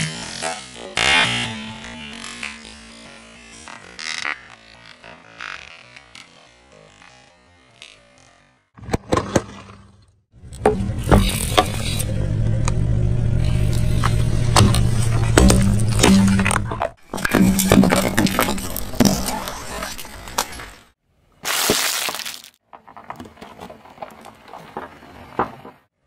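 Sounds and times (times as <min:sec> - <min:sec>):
car engine humming: 0:10.4 - 0:20.9
plastic bottles crushed by tyre: 0:14.5 - 0:25.9.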